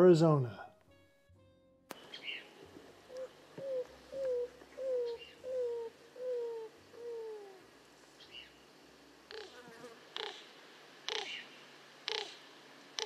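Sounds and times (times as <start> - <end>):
bird low cooing notes: 2.1 - 7.7, 9.3 - 10.5, 11.1 - 13.0.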